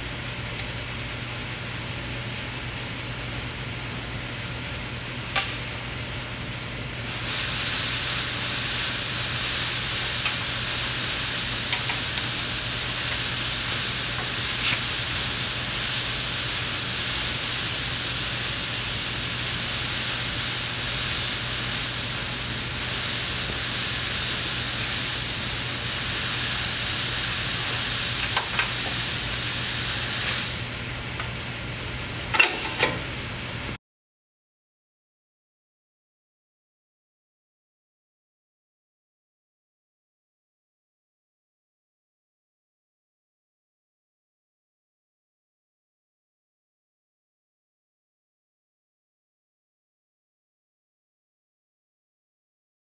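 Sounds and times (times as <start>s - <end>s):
steady even hiss: 7.1s - 30.7s.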